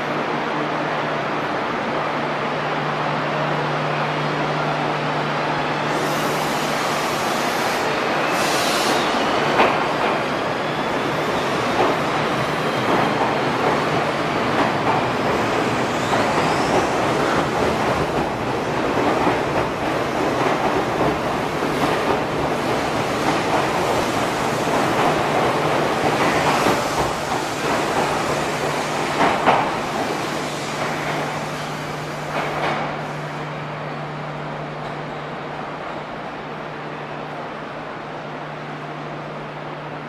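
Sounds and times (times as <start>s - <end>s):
train wheels rolling on rail: 0.0s - 40.0s
train clicks: 24.7s - 30.2s.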